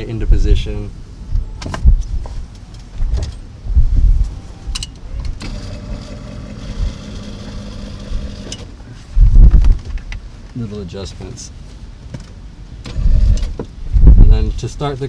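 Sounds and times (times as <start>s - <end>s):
knocks and thumps in seat: 1.6s - 2.4s, 3.0s - 4.0s, 9.2s - 10.1s
car seat motor humming: 5.2s - 8.7s, 12.8s - 13.7s.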